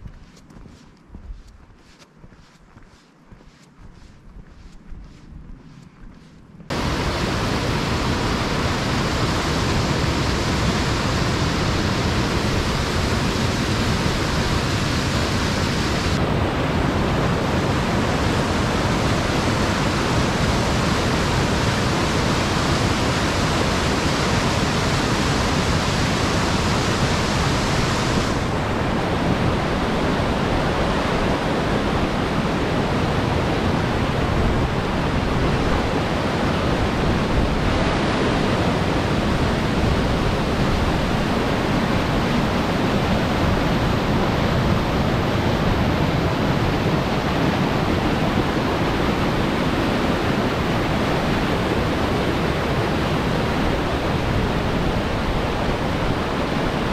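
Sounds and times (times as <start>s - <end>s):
stream rushing over rocks: 6.7s - 16.2s.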